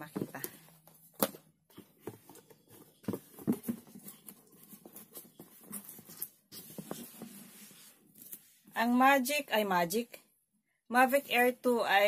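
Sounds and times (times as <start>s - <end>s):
cardboard box rustling: 0.1s - 7.9s.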